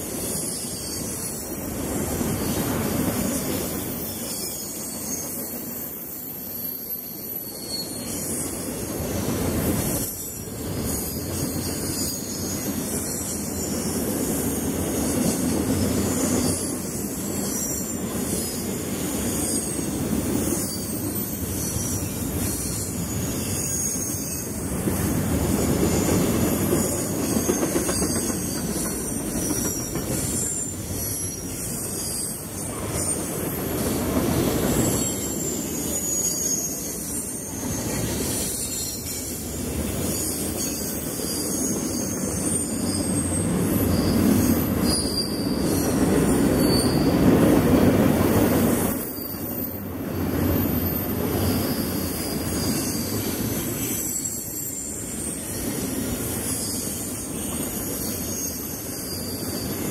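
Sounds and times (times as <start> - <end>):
freight train rumbling: 0.0 - 59.9
wheels squealing on rails: 0.0 - 59.9.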